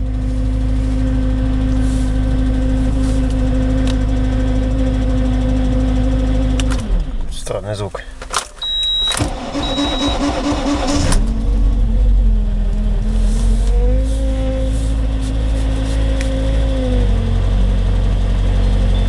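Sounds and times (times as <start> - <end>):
car engine cranking and idling: 0.0 - 19.0
short high beeps: 8.6 - 10.3.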